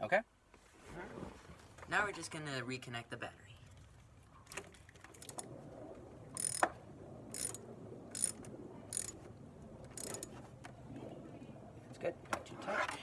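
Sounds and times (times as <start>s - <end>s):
ratchet wrench clicking: 6.4s - 6.6s, 7.4s - 7.6s, 8.2s - 9.2s, 10.0s - 10.3s.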